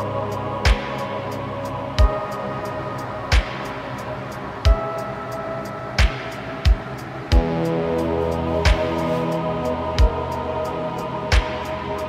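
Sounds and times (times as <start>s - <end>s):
sustained chords: 7.1s - 12.0s
deep drum beat: 8.6s - 9.2s.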